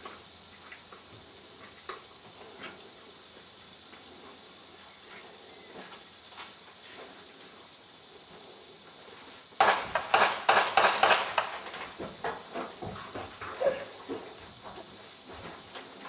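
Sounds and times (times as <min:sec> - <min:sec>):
high insect hum: 0:00.0 - 0:16.0
gunshot cracks: 0:09.6 - 0:11.8.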